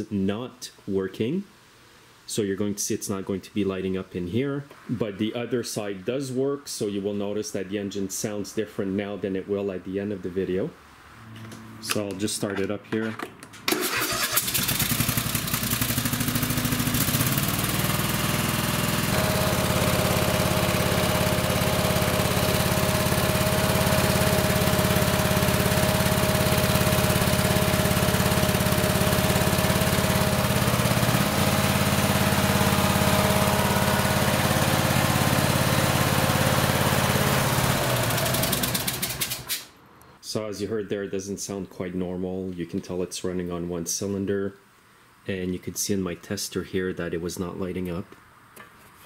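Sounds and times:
lawn tractor engine running: 0:13.6 - 0:39.5.

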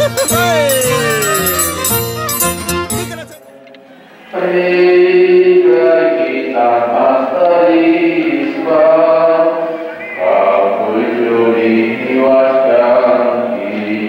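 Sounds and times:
voices singing a slow hymn: 0:03.4 - 0:14.0.

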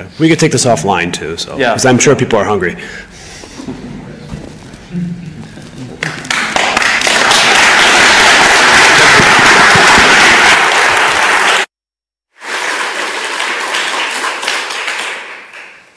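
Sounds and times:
audience applauding: 0:05.6 - 0:11.7, 0:12.4 - 0:15.9.

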